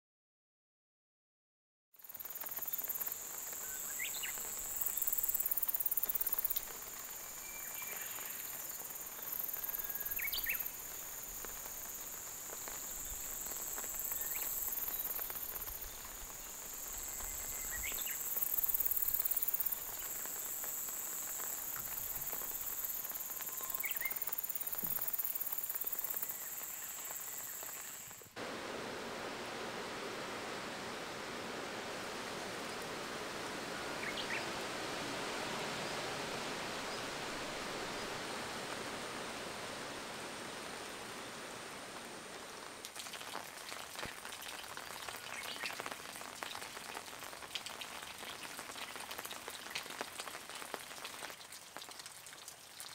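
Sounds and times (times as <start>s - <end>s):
high-pitched insect chorus: 2.0s - 42.7s.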